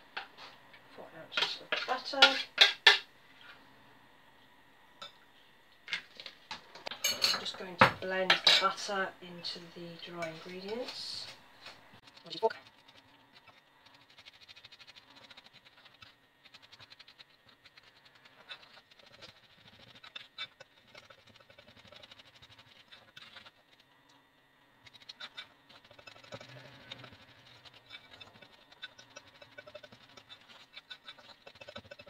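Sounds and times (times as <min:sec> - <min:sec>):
fingertips rubbing butter into flour: 0:12.0 - 0:23.9, 0:24.9 - 0:32.0.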